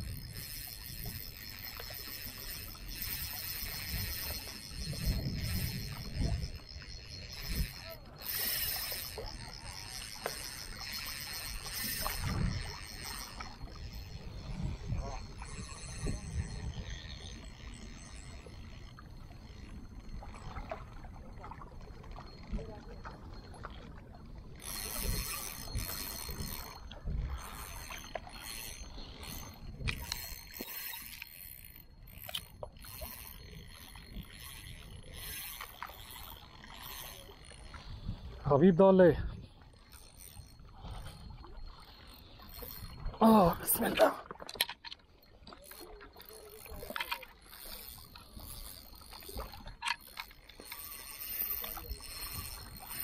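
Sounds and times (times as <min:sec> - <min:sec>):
fishing reel winding: 0:00.0 - 0:23.0, 0:23.7 - 0:38.3, 0:39.1 - 0:53.0.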